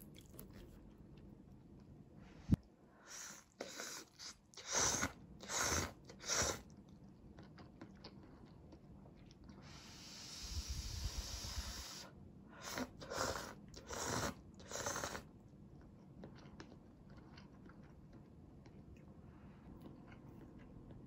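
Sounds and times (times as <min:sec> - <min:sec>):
soft chewing clicks: 0:00.0 - 0:02.0, 0:06.7 - 0:09.6, 0:15.4 - 0:21.0
mouth sounds eating noodles: 0:03.0 - 0:06.7, 0:09.6 - 0:15.3.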